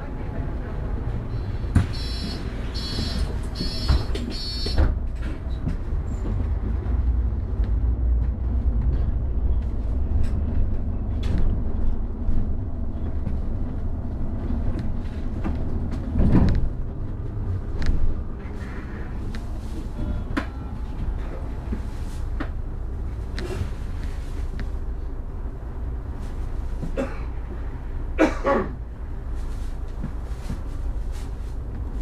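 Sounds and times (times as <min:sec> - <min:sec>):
bus engine running: 0:00.0 - 0:32.0
warning beeper: 0:01.9 - 0:04.8.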